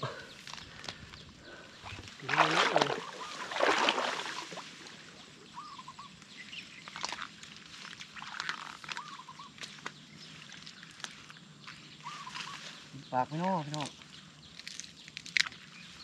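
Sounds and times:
hands splashing in shallow water: 2.0 - 5.0.

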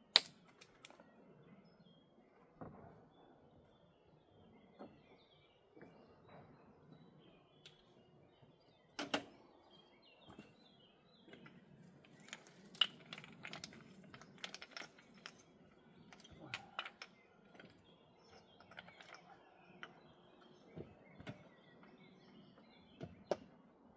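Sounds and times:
birds chirping faintly: 0.4 - 23.9
stones clacking together: 11.3 - 21.5.

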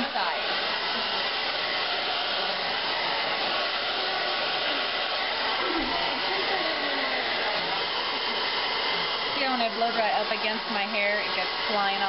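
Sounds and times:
blow dryer running: 0.0 - 12.0.

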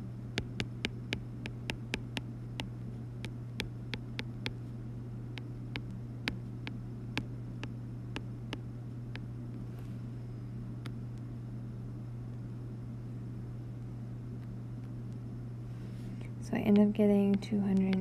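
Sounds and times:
low electrical hum: 0.0 - 18.0
stylus tapping on glass screen: 0.4 - 4.6.

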